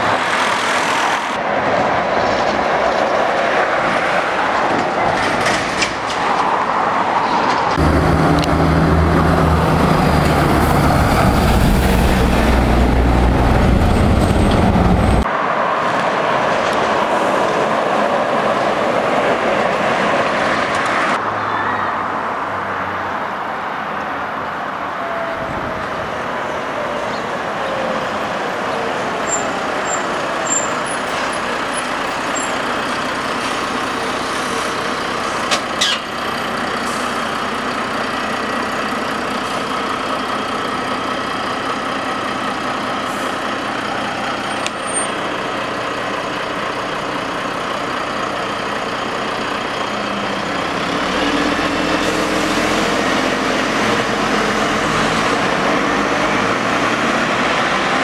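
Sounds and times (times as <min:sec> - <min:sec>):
diesel truck engine running: 0:07.8 - 0:15.3, 0:29.3 - 0:58.0
air brakes hissing: 0:36.8 - 0:37.3.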